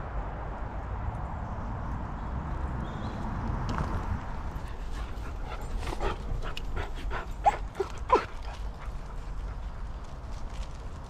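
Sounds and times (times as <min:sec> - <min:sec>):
small dog crying: 0:07.4 - 0:08.4.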